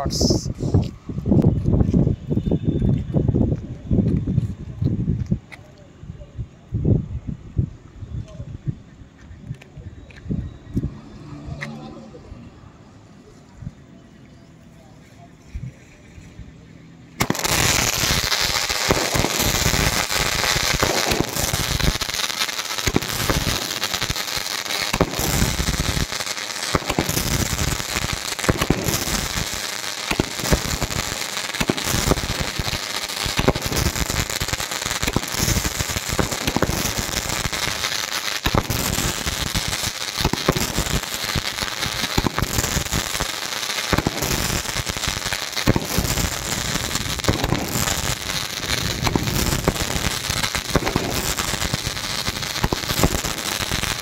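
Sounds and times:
firework crackling: 0.0s - 5.7s, 10.8s - 13.4s, 17.1s - 54.0s
firework shots banging: 17.2s - 54.0s.

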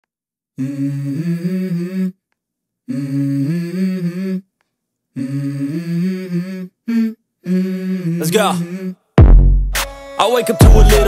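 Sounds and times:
person humming a melody: 0.6s - 2.2s, 2.9s - 4.5s, 5.2s - 9.1s, 10.5s - 11.0s.

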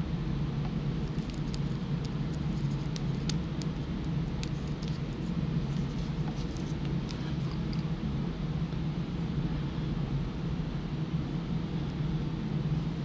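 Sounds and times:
steady low hum: 0.0s - 13.0s
watch strap clicks and rustle: 1.0s - 7.9s.

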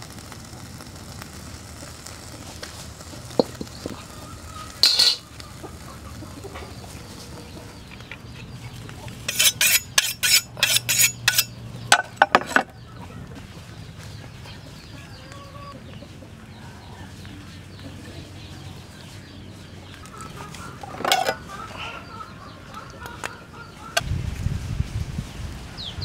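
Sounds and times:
chickens clucking: 3.2s - 9.3s, 11.4s - 24.0s.

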